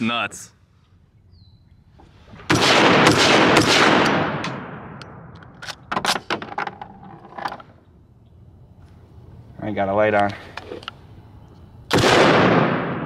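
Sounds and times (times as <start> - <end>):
quieter sharp cracks: 2.4 - 6.7, 11.9 - 13.0
rapid gunshots with echo: 2.5 - 5.0, 11.9 - 13.0.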